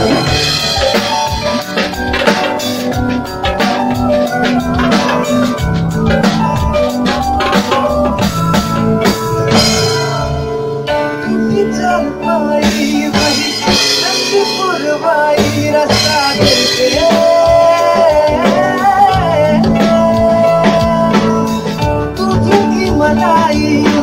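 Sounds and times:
live band playing: 0.0s - 24.0s
man singing: 11.1s - 24.0s.

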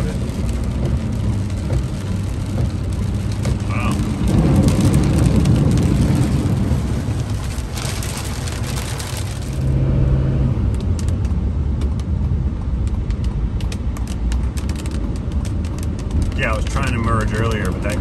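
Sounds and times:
light rain ticks: 0.0s - 9.6s, 10.6s - 18.0s
rain and tyre spray hiss: 0.0s - 9.7s, 13.6s - 18.0s
engine and road rumble: 0.0s - 18.0s.

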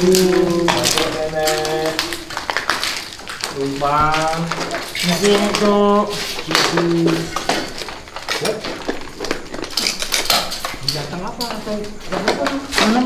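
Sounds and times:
person humming: 0.0s - 2.2s
light clinks and knocks: 0.0s - 13.0s.

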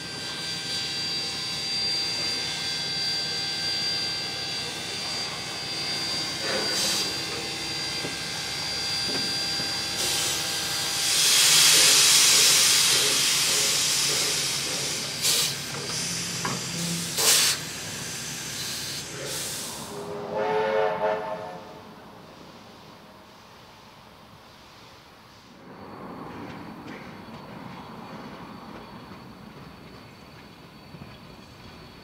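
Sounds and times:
locomotive steam hiss: 0.0s - 26.1s
steam whistle blast: 5.9s - 7.3s, 19.5s - 21.9s.

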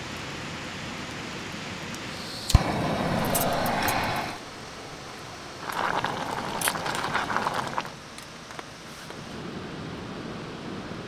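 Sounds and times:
camping stove hissing: 1.8s - 9.7s
small crackles: 5.6s - 9.3s.

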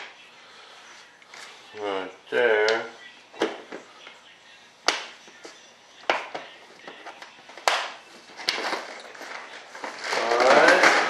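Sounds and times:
plastic box clicks and clacks: 7.6s - 11.0s.

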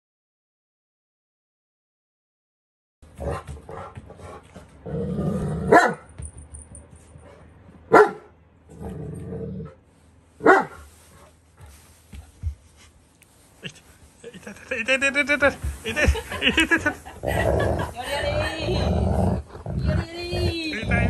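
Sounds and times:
dog growling: 3.2s - 5.8s, 8.7s - 9.8s, 16.5s - 21.0s
dog barking: 5.7s - 6.1s, 7.9s - 8.3s, 10.4s - 10.9s.

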